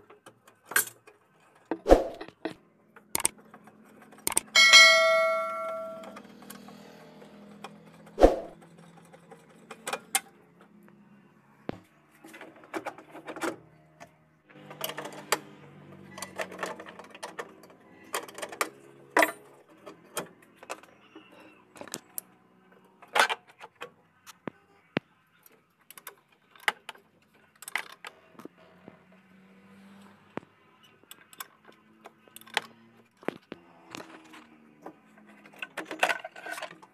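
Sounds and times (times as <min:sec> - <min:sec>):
metallic clicks of hand tools: 0:02.1 - 0:03.4, 0:04.1 - 0:04.7
bright ringing chime: 0:04.6 - 0:06.2.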